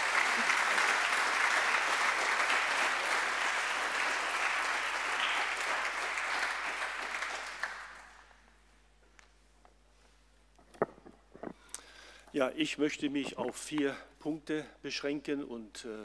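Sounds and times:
congregation applauding: 0.0s - 8.4s.

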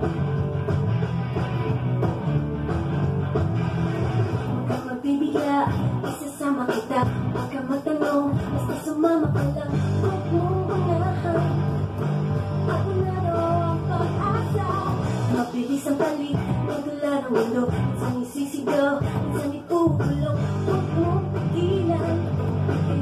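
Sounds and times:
electric bass plucked: 0.0s - 4.8s, 5.7s - 6.1s, 7.0s - 7.5s, 8.4s - 15.4s, 16.4s - 16.7s, 17.7s - 18.1s, 19.0s - 23.0s
recorded rock song with singing: 0.0s - 23.0s.

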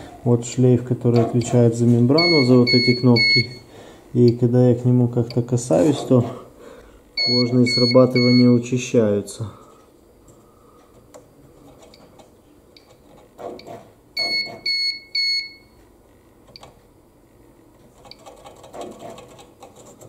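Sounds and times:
short electronic beeps: 2.2s - 3.6s, 7.2s - 8.6s.

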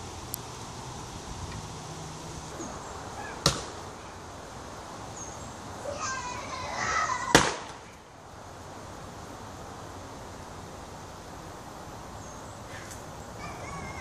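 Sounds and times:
axe chopping wood: 3.4s - 3.7s.

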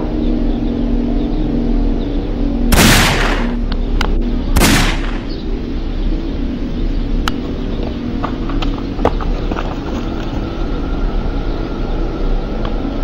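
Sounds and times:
handgun shots: 2.8s - 3.6s, 4.6s - 5.3s.

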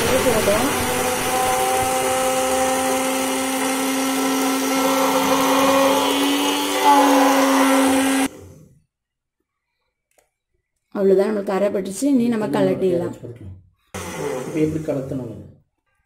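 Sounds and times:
blender motor grinding: 0.0s - 8.8s, 13.9s - 15.3s.

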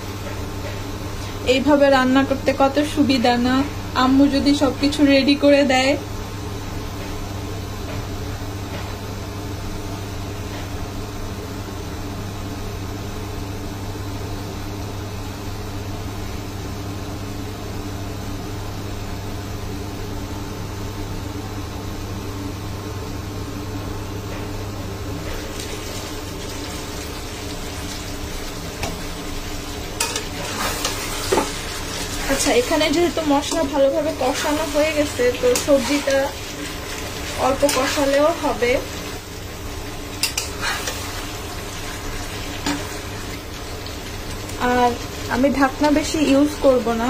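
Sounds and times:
steady low hum: 0.0s - 47.0s
vegetables sizzling in a pan: 25.2s - 47.0s.

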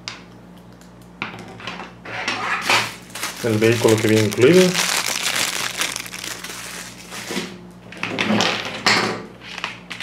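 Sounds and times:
plastic bag crinkling: 2.8s - 7.4s.

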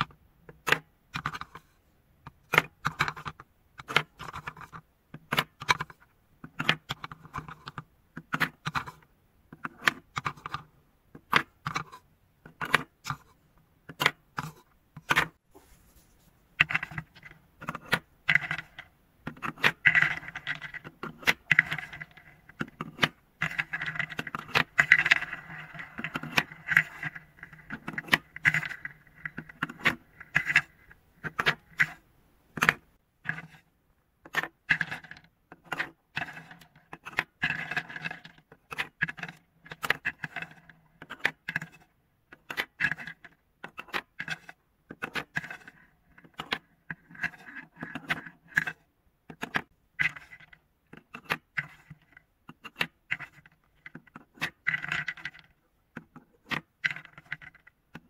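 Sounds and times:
balls rolling in wooden bowl: 16.6s - 32.0s, 34.3s - 41.8s, 49.4s - 58.0s
wooden balls clacking: 16.6s - 32.0s, 34.2s - 58.0s.

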